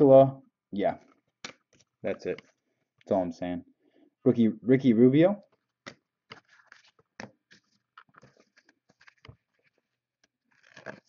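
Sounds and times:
cards scraping and clicking: 0:05.6 - 0:11.0.

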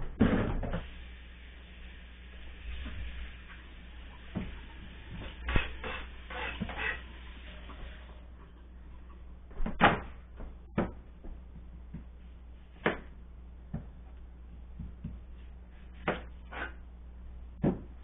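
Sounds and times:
cutting board knocks and clunks: 0:09.5 - 0:11.0, 0:17.6 - 0:17.9.

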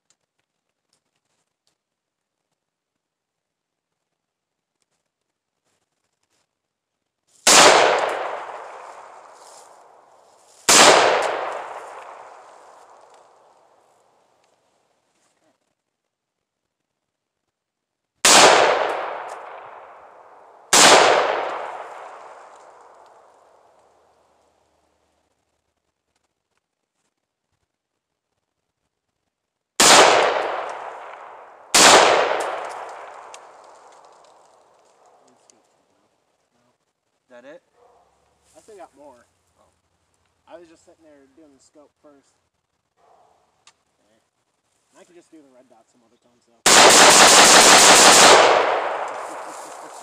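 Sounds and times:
rifle shots echoing: 0:07.5 - 0:13.8, 0:18.2 - 0:23.7, 0:29.8 - 0:34.4, 0:46.7 - 0:50.0.

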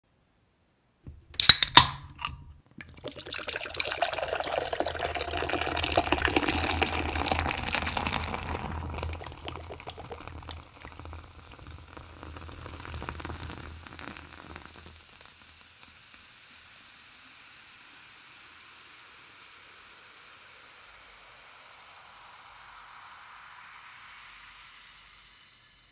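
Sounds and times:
cider poured into glass: 0:01.4 - 0:15.3.

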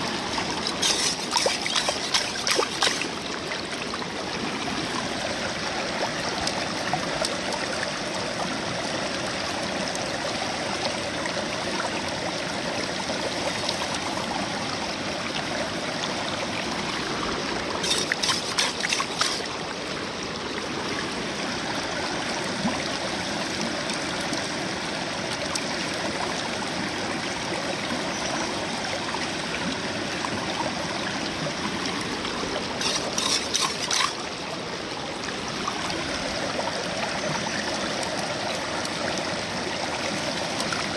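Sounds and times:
river flowing over rocks: 0:00.0 - 0:40.9
metal scoop scraping wet gravel: 0:00.6 - 0:03.1, 0:17.8 - 0:19.5, 0:32.8 - 0:34.3.

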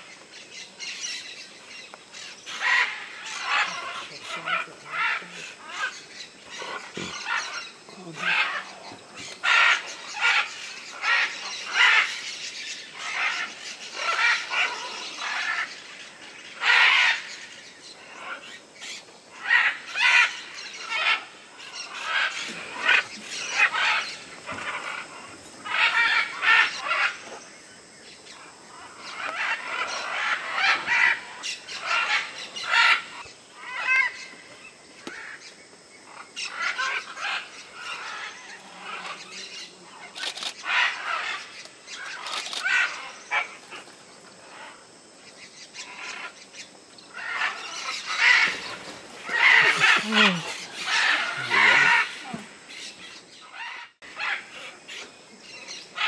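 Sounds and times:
parrots squawking: 0:02.5 - 0:08.8, 0:12.9 - 0:15.9, 0:19.3 - 0:27.2, 0:28.7 - 0:34.2, 0:36.4 - 0:43.8, 0:47.1 - 0:55.0.

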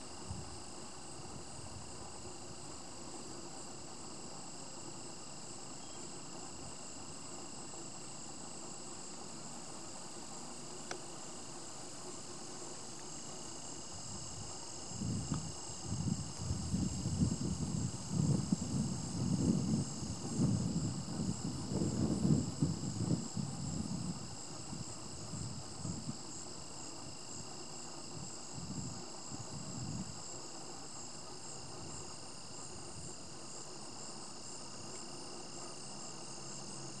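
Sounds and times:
insects trilling: 0:00.0 - 0:37.0
wind buffeting microphone: 0:14.0 - 0:30.4.

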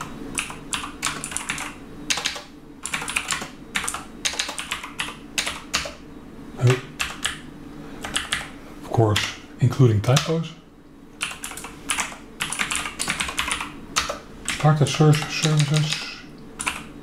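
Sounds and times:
typing on computer keyboard: 0:00.0 - 0:06.0, 0:07.0 - 0:07.4, 0:08.0 - 0:08.5, 0:11.2 - 0:16.9.

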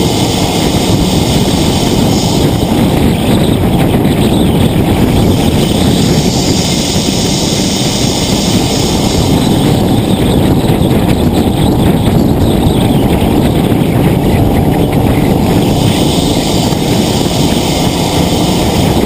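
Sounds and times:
road noise: 0:00.0 - 0:19.0
wind buffeting: 0:00.0 - 0:19.0.

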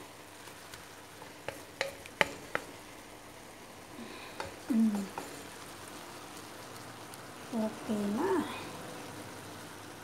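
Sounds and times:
faint sizzle: 0:00.0 - 0:10.0
wooden spatula stirring in a wok: 0:00.0 - 0:10.0
spatula knocking against pan: 0:01.2 - 0:02.8, 0:04.4 - 0:05.4.

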